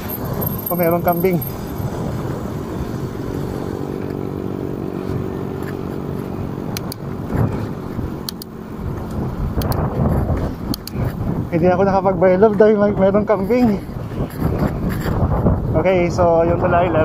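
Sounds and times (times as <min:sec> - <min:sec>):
vehicle engine humming: 0:00.0 - 0:17.0
sharp clicks: 0:06.7 - 0:07.0, 0:08.2 - 0:09.9, 0:10.6 - 0:11.2.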